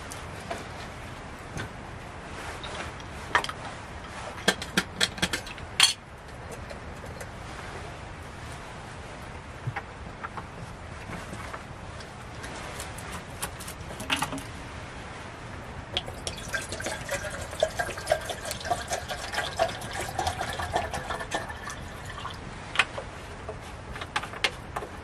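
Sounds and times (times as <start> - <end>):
water pouring into container: 16.0 - 22.5.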